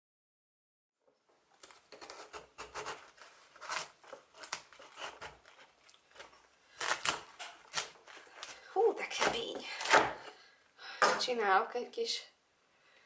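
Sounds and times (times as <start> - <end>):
knife crunching through cabbage: 1.6 - 10.1.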